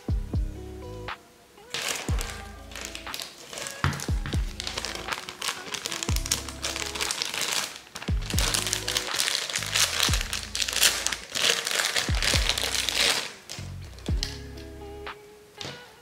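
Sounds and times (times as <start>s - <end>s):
background music with deep bass: 0.0s - 1.2s, 1.8s - 16.0s
plastic bag crinkling: 1.7s - 14.3s.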